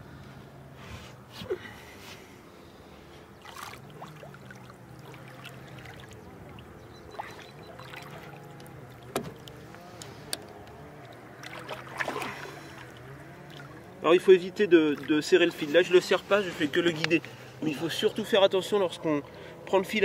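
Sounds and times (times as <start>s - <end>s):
boat electric motor humming: 2.5s - 20.0s
water splashes: 3.4s - 18.0s.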